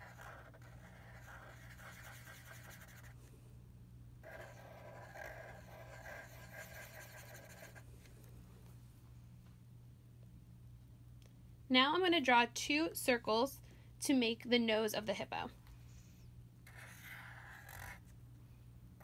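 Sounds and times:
marker scratching on paper: 0.0 - 3.2, 4.2 - 7.8, 16.6 - 18.1
faint low hum: 0.0 - 19.0.

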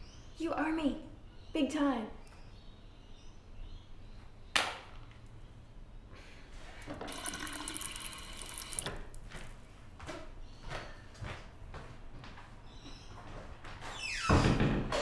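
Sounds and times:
sink tap running: 6.9 - 9.1.

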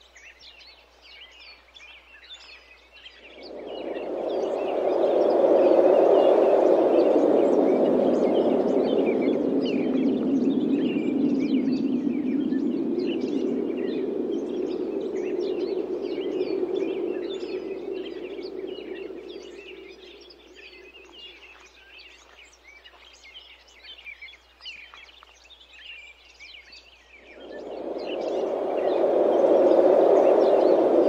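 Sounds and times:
small birds chirping: 0.0 - 31.0
wind gusts rushing: 3.2 - 21.5, 27.2 - 31.0.

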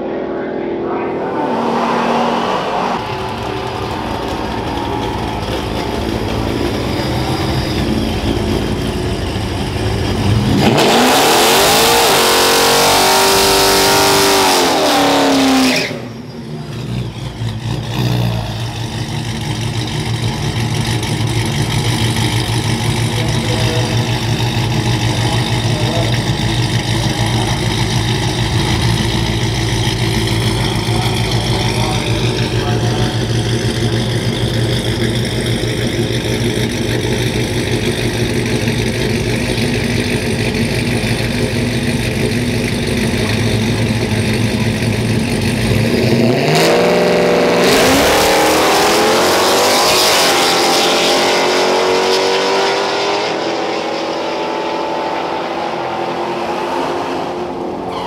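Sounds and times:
truck engine revving hard: 0.8 - 58.0
engine idling: 3.0 - 10.7, 16.1 - 46.2.

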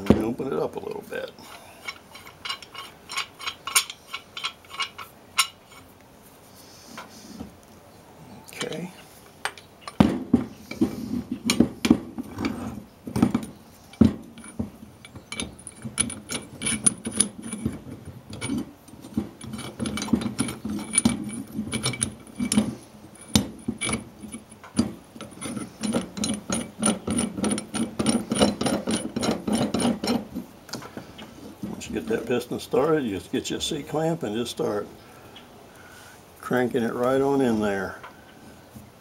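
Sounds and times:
metal clamp clicks and knocks: 1.8 - 5.6, 13.2 - 30.9
clamp screw turning: 25.2 - 30.2.

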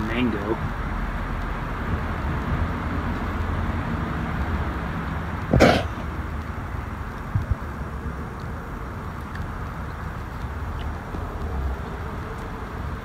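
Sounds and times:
man coughing: 5.5 - 6.0.

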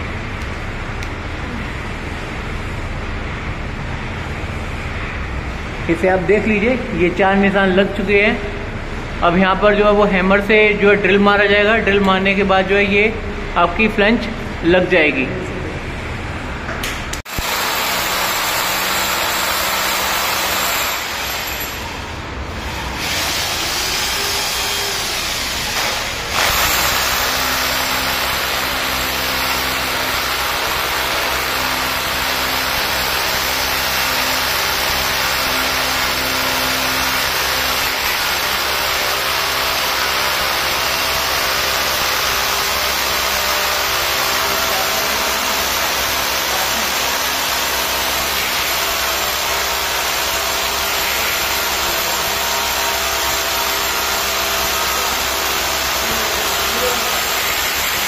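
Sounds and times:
hammer drill boring into concrete: 17.3 - 58.0.

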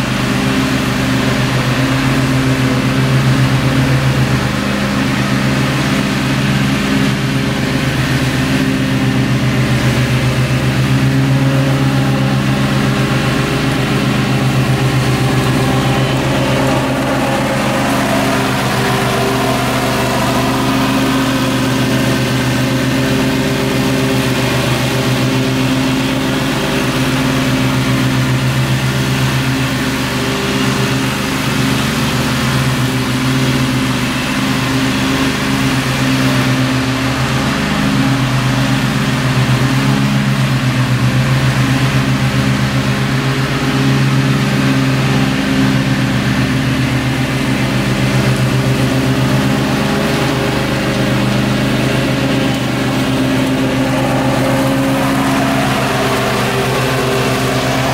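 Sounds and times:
blades cutting grass: 0.0 - 57.9
riding mower engine running: 0.0 - 57.9.

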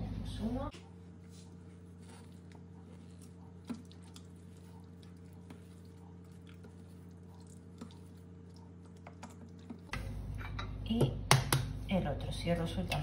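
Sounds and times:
spatula mixing wet batter: 0.8 - 9.9.

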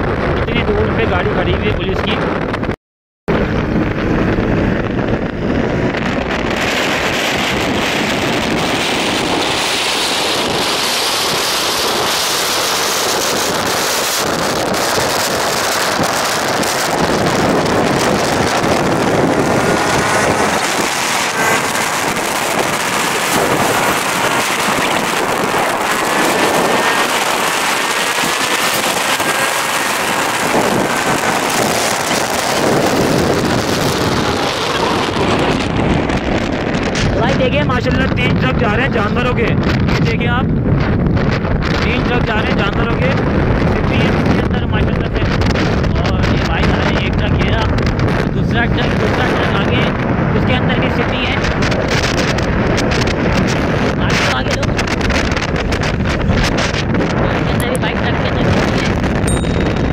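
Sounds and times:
wind rushing over microphone: 0.0 - 59.9.

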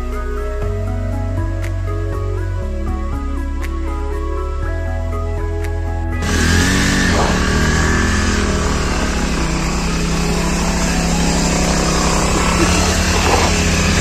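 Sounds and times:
motorcycle engine running: 6.2 - 14.0.

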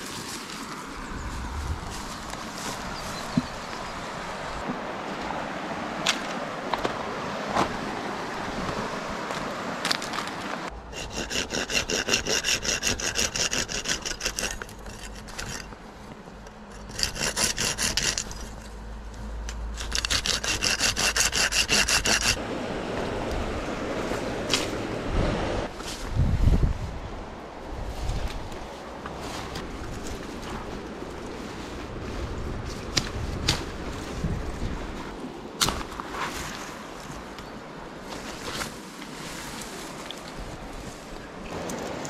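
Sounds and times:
hand saw cutting wood: 10.9 - 15.8, 16.8 - 18.6, 19.8 - 22.4.

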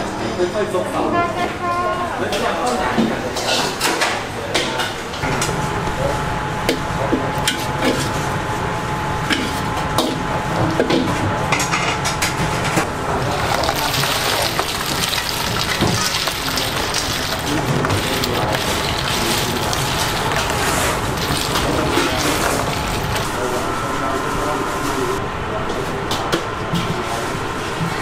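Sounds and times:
metal utensils and bowls clattering: 13.2 - 23.4.

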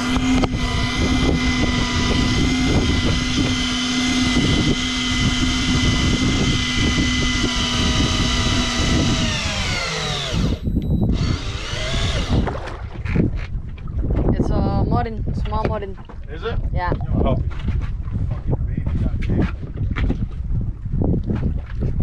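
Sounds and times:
electric fishing reel motor whining: 0.0 - 12.6.

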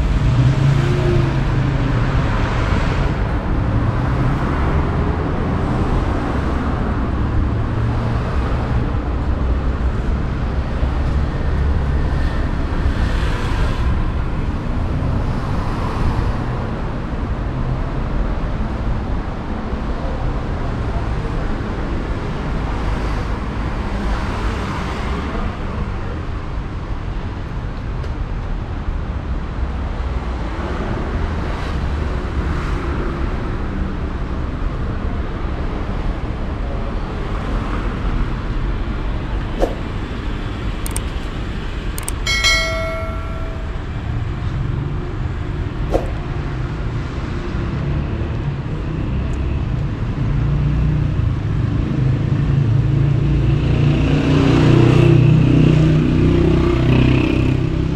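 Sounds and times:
traffic rumble: 0.0 - 57.9
short high tone: 42.2 - 44.2.

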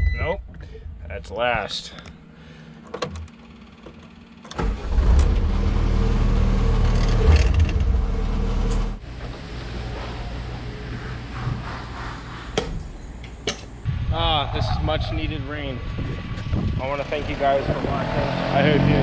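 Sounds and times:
diesel engine from inside cab: 0.0 - 12.4.

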